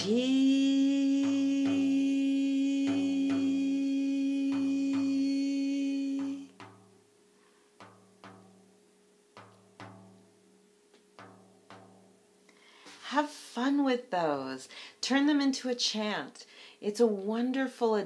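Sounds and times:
woman singing a held note: 0.0s - 6.6s
hand tapping frame drum: 0.0s - 7.0s, 7.8s - 10.3s, 11.0s - 12.2s.

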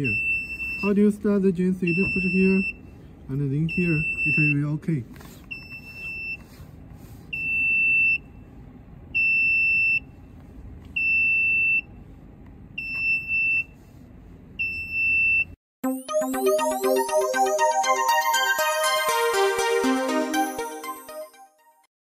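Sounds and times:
electronic music: 15.8s - 21.9s.

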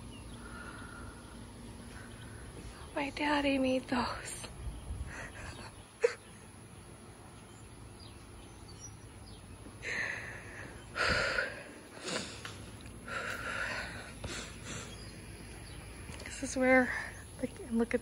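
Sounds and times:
person sniffling and breathing: 9.8s - 15.2s.

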